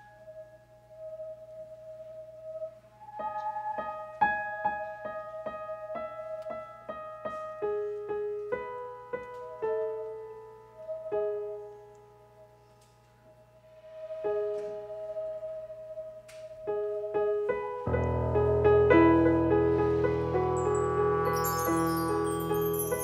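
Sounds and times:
piano single ringing notes: 17.8s - 23.0s
held tone: 19.7s - 23.0s.

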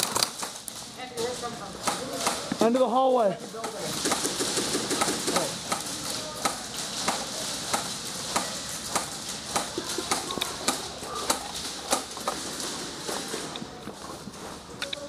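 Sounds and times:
airsoft guns firing: 3.6s - 13.5s.

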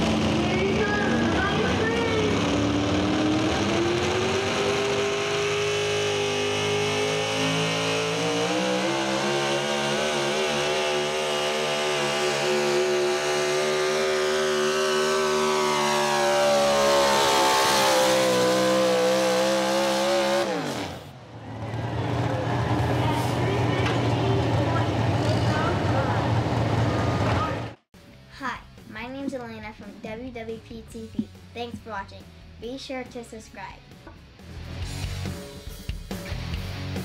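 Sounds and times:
truck engine at high revs: 0.0s - 27.9s.

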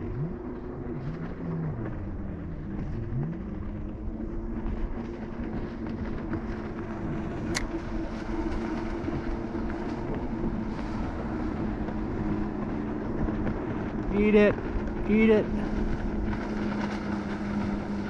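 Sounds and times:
low rumble: 0.0s - 18.0s.

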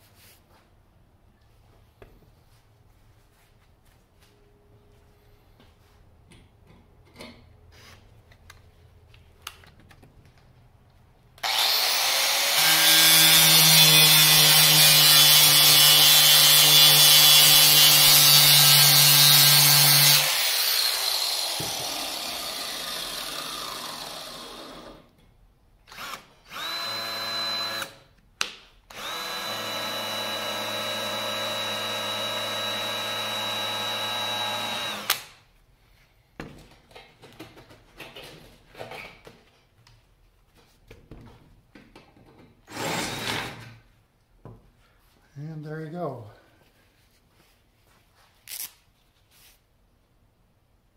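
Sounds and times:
angle grinder grinding metal: 11.4s - 24.0s
cordless drill whirring: 11.4s - 25.0s, 25.9s - 28.1s, 28.9s - 35.4s.

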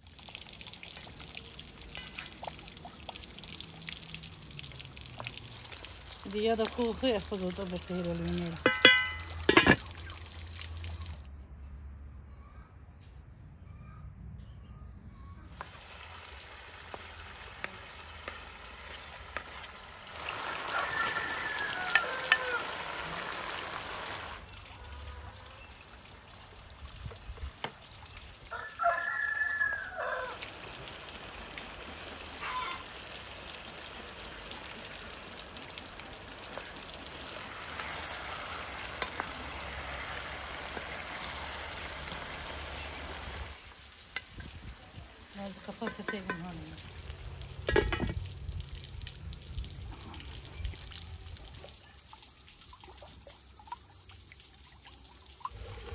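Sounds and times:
food sizzling in a frying pan: 0.0s - 11.3s, 15.5s - 52.0s
rooster crowing: 20.4s - 23.5s, 28.5s - 30.5s, 32.4s - 32.9s.

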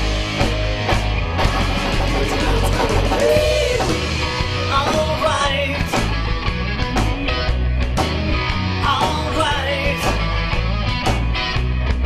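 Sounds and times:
drums with cymbals: 0.0s - 10.3s
electric guitars: 0.0s - 12.0s
singing: 2.2s - 4.1s.

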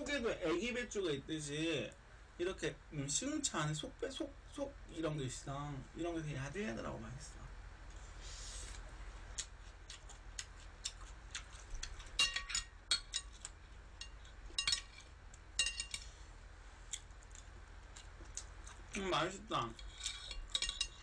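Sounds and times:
chopsticks and spoon on ceramic plate: 10.8s - 16.2s, 16.9s - 21.0s.

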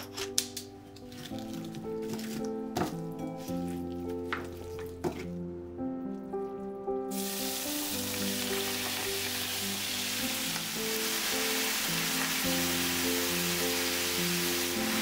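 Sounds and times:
meat sizzling in hot oil: 7.1s - 15.0s.

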